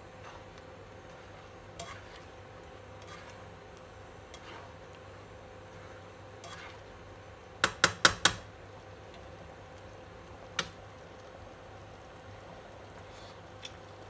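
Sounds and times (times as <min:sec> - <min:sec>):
metal spoon knocking on pan: 0:07.6 - 0:08.5.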